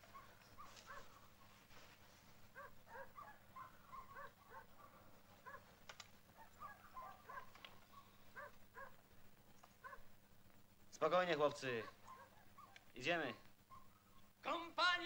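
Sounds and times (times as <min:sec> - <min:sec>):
dogs barking faintly: 0:00.0 - 0:10.2, 0:11.6 - 0:14.4
sharp clicks: 0:05.8 - 0:06.2.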